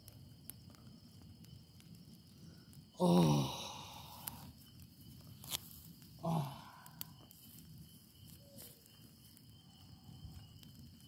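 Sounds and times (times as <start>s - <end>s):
bonfire crackling: 0.0s - 11.0s
person sighing: 3.0s - 4.4s, 6.2s - 7.1s.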